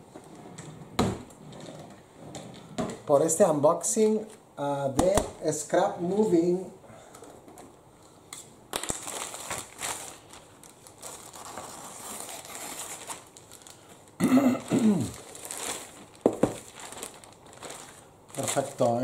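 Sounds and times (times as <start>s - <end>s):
plastic bag crinkling: 8.7s - 19.0s.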